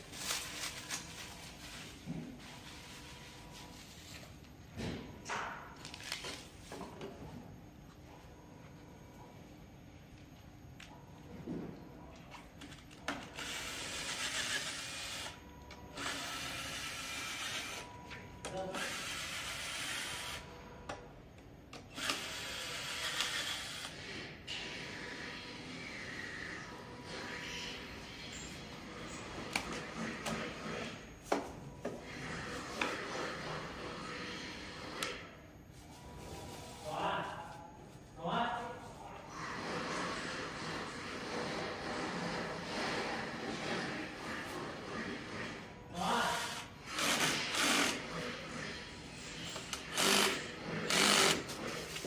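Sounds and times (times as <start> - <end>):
room noise: 0.0 - 52.0
cordless drill-driver running: 13.4 - 15.4, 16.0 - 17.8, 18.8 - 20.4, 22.0 - 23.9, 46.9 - 48.0, 49.9 - 51.4.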